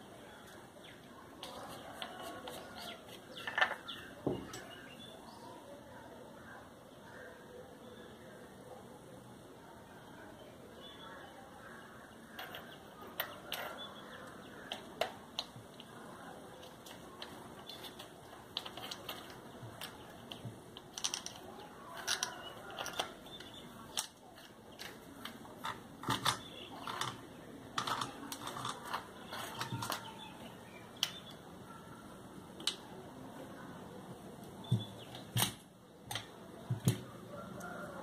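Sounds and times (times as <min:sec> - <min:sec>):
metal and plastic parts clicking: 0:16.6 - 0:30.3, 0:35.1 - 0:37.0.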